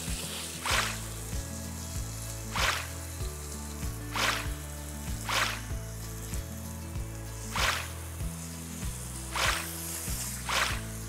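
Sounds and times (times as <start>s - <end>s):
background music with bass: 0.0s - 11.0s
hose spraying water: 0.0s - 11.0s.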